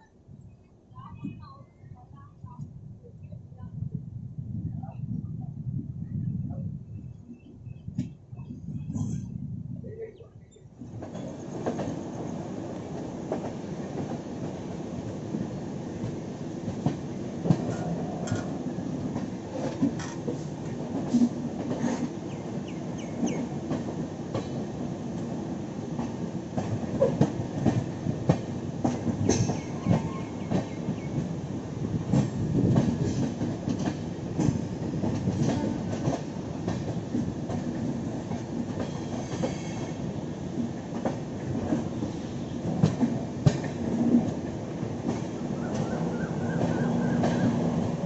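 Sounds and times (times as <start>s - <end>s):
train rumbling on track: 0.0s - 48.0s
train wheel squeals: 29.2s - 31.2s, 38.8s - 40.0s, 45.5s - 47.8s.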